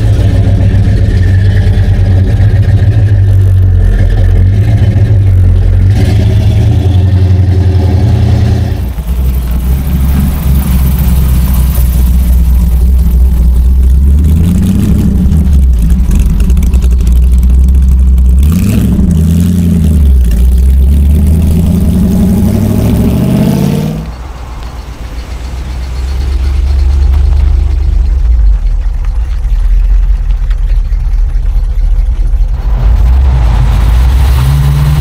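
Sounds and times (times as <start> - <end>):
car engine revving: 0.0 - 35.0.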